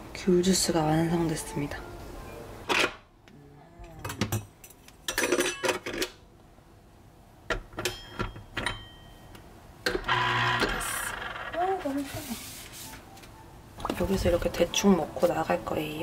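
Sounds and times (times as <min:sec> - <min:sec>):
kitchenware clattering: 0:04.0 - 0:06.2, 0:07.5 - 0:09.2
kitchenware clicking and clinking: 0:04.0 - 0:06.2, 0:07.5 - 0:09.1.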